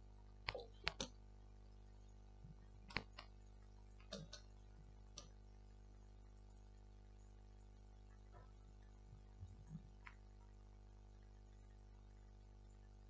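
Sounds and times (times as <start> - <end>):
faint steady hum: 0.0 - 13.0
fingers tapping a touchscreen: 0.5 - 1.2, 2.9 - 3.3, 4.0 - 4.5.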